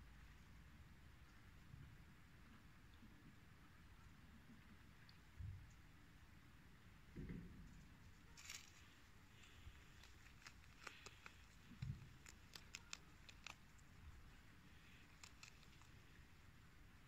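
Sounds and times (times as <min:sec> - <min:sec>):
rabbit chewing a cabbage leaf: 0:07.7 - 0:17.0.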